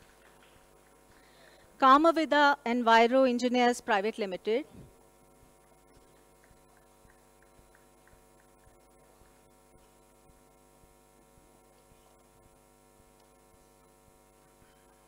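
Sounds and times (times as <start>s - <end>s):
low electrical mains hum: 0.0s - 15.0s
faint ticks: 5.8s - 10.0s.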